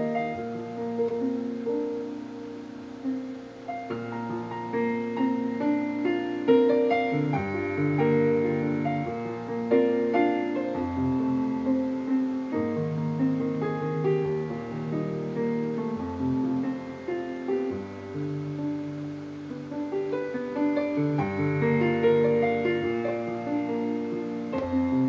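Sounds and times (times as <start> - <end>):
piano music: 0.0 - 25.0.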